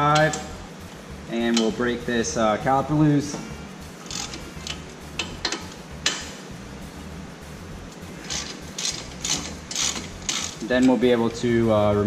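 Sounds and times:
ratchet clicking: 4.0s - 6.3s, 7.9s - 11.1s
sharp metal clicks and knocks: 4.1s - 6.3s, 8.3s - 11.0s.

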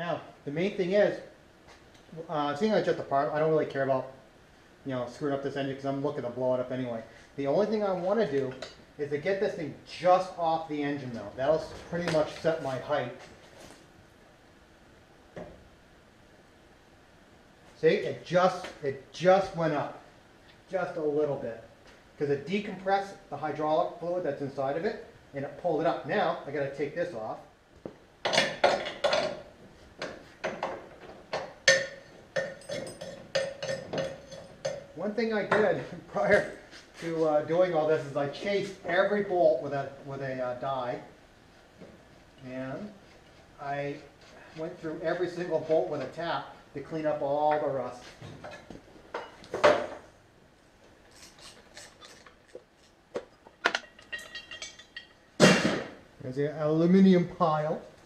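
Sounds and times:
hand tools clanking on metal: 30.4s - 35.7s, 51.1s - 55.9s.

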